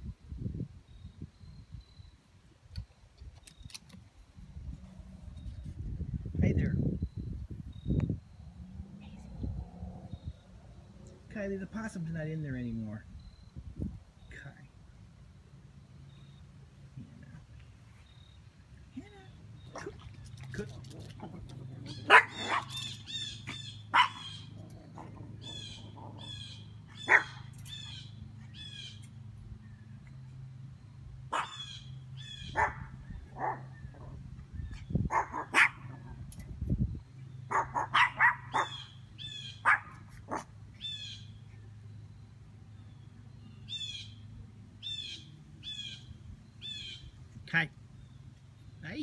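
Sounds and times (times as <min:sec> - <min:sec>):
small dogs yapping: 0:19.6 - 0:28.8, 0:31.3 - 0:34.2, 0:34.8 - 0:36.3, 0:37.5 - 0:41.0
bird chirping: 0:21.7 - 0:30.2, 0:40.7 - 0:49.0.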